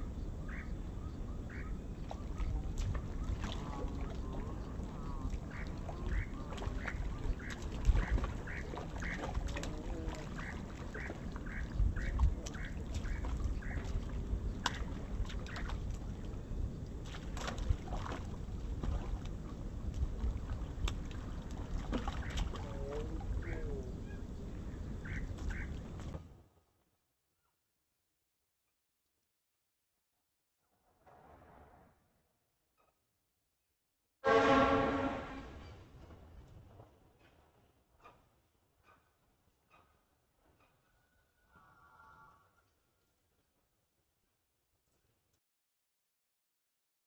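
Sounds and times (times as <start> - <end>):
low outdoor rumble: 0.0 - 26.1
fish thrashing and splashing: 20.9 - 22.6.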